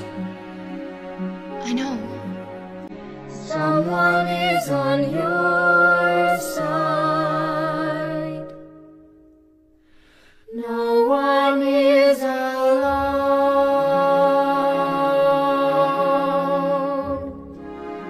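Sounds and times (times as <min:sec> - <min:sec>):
high singing voice: 0:03.4 - 0:08.9.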